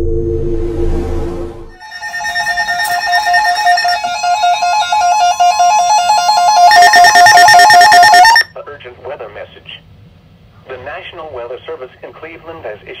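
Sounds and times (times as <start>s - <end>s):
electronic two-tone warble alarm: 0.0s - 8.5s.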